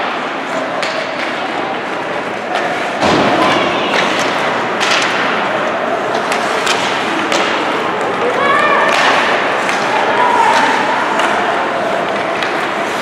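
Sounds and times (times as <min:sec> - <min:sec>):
stick hitting puck: 0:00.0 - 0:05.5, 0:06.1 - 0:08.2, 0:08.9 - 0:13.0
arena noise: 0:00.0 - 0:13.0.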